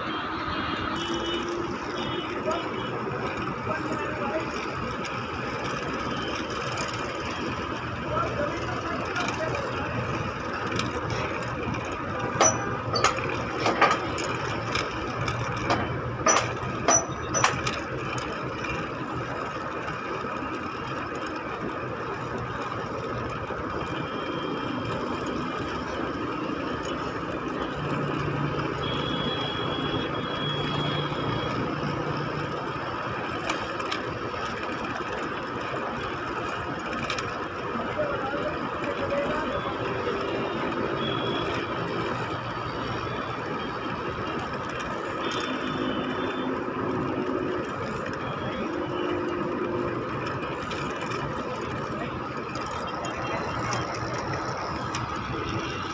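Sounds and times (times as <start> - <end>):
electric hoist whining: 0.0 - 55.9
sharp clacks: 4.4 - 20.2.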